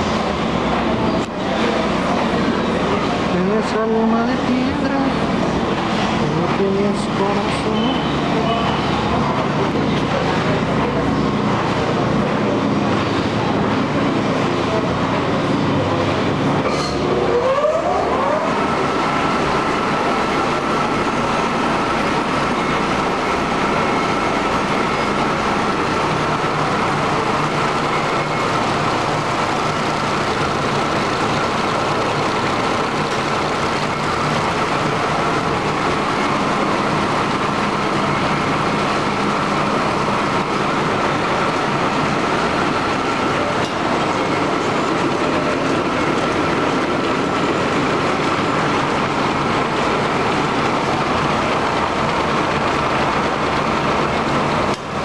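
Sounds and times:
machine belts and rollers running: 0.0 - 55.0.

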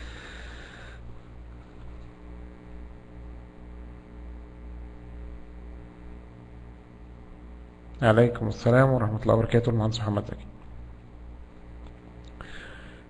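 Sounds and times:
faint hiss: 0.0 - 2.0
low electrical mains hum: 0.0 - 13.0.

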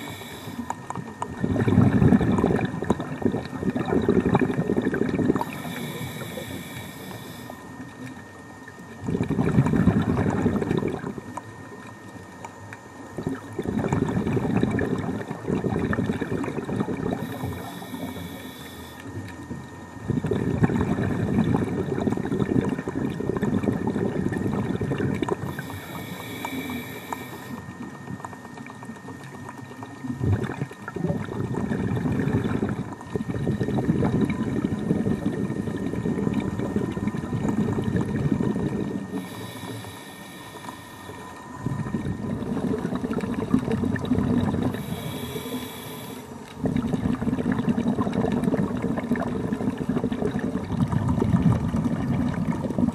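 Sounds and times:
regulator inhale hiss: 0.0 - 0.8, 5.4 - 7.8, 17.1 - 19.2, 25.4 - 27.7, 38.8 - 41.8, 44.6 - 46.4
bubbling exhaled air underwater: 0.0 - 52.9.

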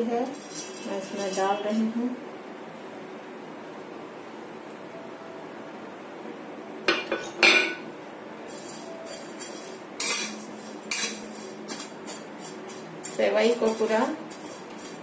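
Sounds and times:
metal spatula scraping metal pan: 0.0 - 1.9, 8.4 - 15.0.

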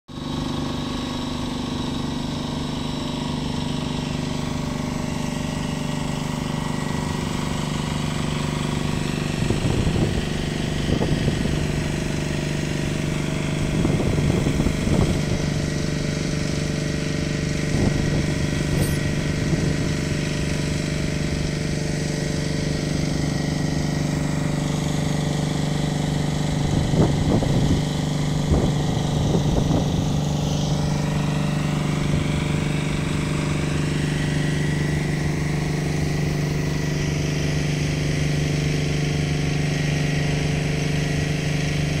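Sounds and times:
low engine hum: 0.1 - 42.0.

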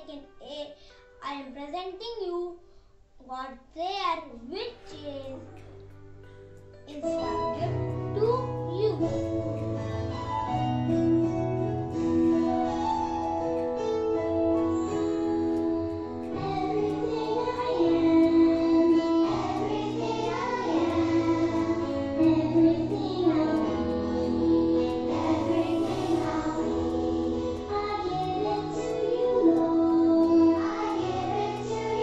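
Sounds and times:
keyboard backing music: 4.2 - 32.0
child singing: 6.9 - 9.7, 15.6 - 32.0.

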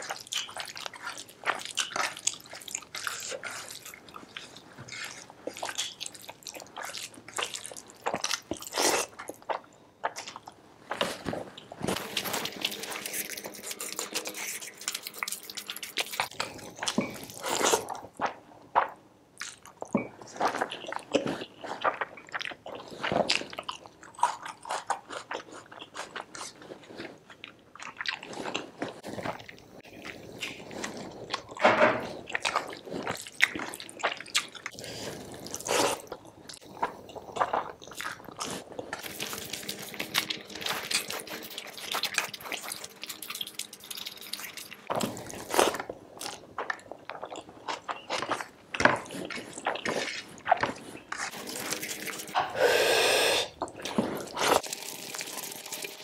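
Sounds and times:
person chewing: 0.0 - 56.0.

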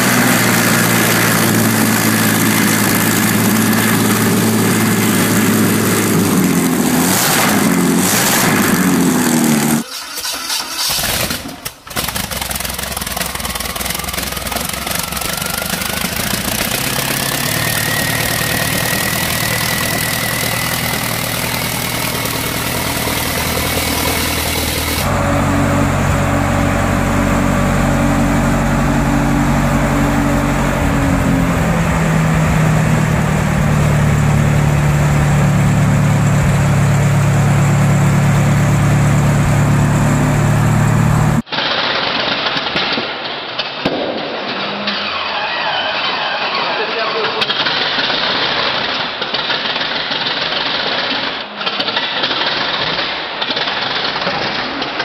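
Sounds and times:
engine running with whine: 0.0 - 41.5
truck engine idling deeply: 12.7 - 41.4.

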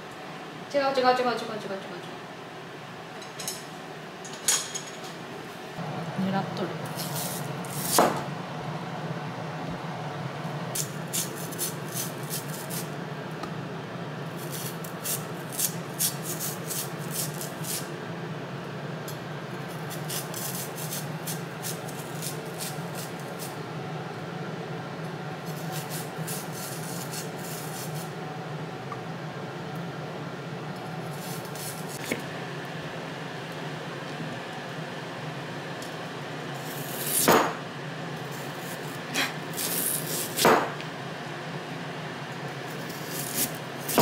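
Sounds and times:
steady low hum: 0.0 - 44.0
knife scraping yam skin: 6.9 - 8.0, 10.8 - 12.9, 14.4 - 17.9, 19.8 - 23.5, 25.5 - 28.1, 31.1 - 32.2, 38.4 - 40.5, 42.8 - 44.0.

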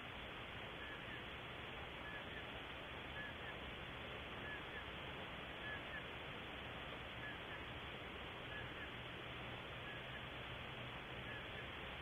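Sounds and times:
microphone hiss: 0.0 - 12.0
faint bird chirps: 0.7 - 3.7, 4.3 - 6.2, 7.1 - 7.8, 8.4 - 9.1, 9.7 - 10.4, 11.0 - 11.9.

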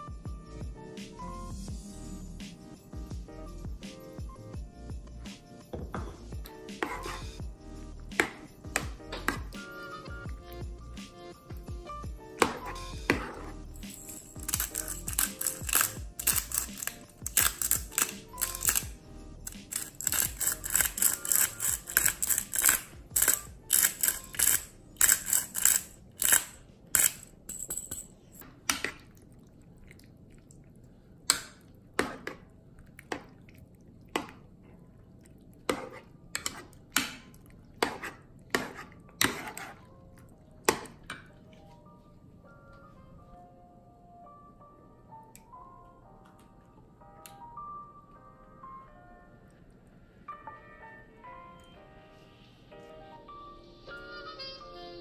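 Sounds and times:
utensil scraping a saucepan: 6.8 - 7.4, 12.5 - 27.2, 37.8 - 39.9
pepper mill grinding: 13.8 - 28.1.

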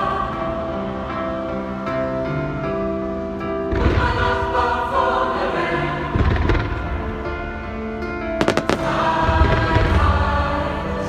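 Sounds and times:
choral music: 0.0 - 11.0
fireworks crackling and booming: 3.7 - 4.8, 6.1 - 7.6, 8.3 - 10.5
sharp firework bangs: 8.4 - 10.1.

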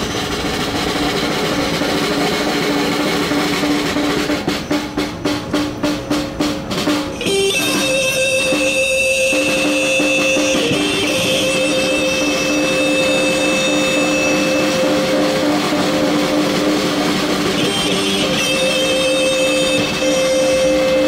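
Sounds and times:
snare drum strokes: 0.0 - 21.0
electric guitar through amplifier: 7.2 - 21.0.

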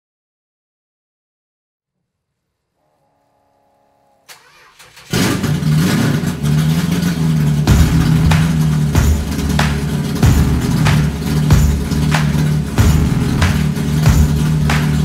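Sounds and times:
car engine starting and running: 4.3 - 15.0.

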